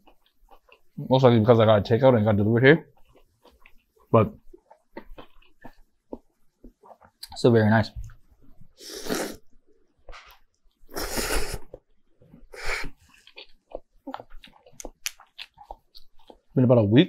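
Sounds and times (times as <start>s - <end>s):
soft chewing and mouth clicks: 0.0s - 1.4s, 2.7s - 16.6s
person slurping noodles: 8.8s - 9.4s, 10.9s - 11.8s, 12.4s - 13.3s.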